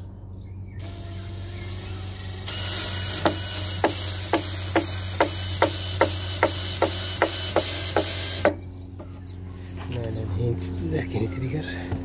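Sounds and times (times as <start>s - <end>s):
cordless drill drilling into wood: 0.8s - 8.6s.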